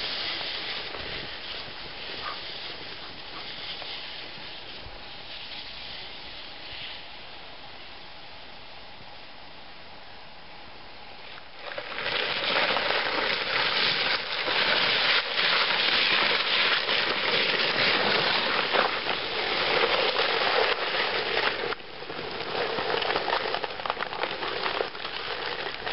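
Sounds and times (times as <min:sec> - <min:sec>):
sled scraping over icy snow: 0:00.0 - 0:07.8, 0:11.2 - 0:25.9.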